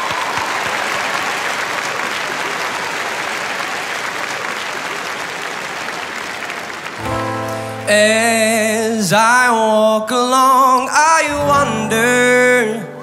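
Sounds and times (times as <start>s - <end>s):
audience applauding: 0.0s - 8.7s
backing music held chord: 7.0s - 8.7s.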